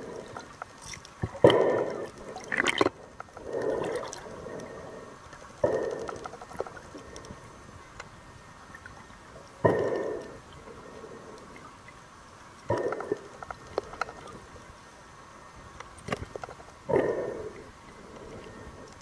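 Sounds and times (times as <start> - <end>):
sharp clicks underwater: 0.0 - 8.2, 12.6 - 14.5, 15.8 - 17.3.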